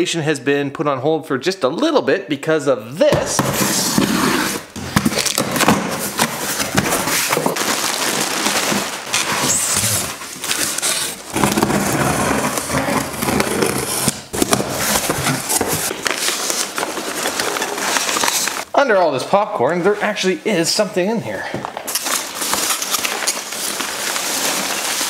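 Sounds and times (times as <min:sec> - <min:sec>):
cardboard flaps scraping: 0:03.2 - 0:18.7, 0:21.7 - 0:25.0
packing tape tearing: 0:03.5 - 0:18.7, 0:21.7 - 0:25.0
packing peanuts rustling: 0:03.8 - 0:18.7, 0:19.9 - 0:25.0.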